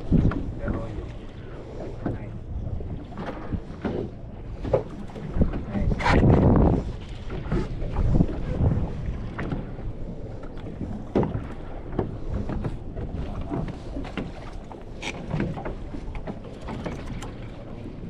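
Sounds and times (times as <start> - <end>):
water lapping against boat: 0.0 - 18.0
wind buffeting microphone: 0.0 - 18.0.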